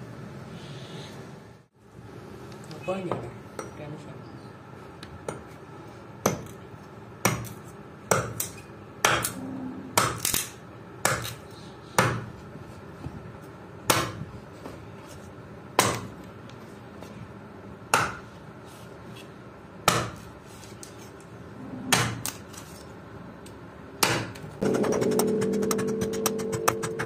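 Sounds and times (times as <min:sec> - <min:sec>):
hand axe chopping wood: 0:11.0 - 0:11.4, 0:13.9 - 0:14.2, 0:15.8 - 0:16.1, 0:17.9 - 0:18.2, 0:19.9 - 0:20.2, 0:24.0 - 0:24.4.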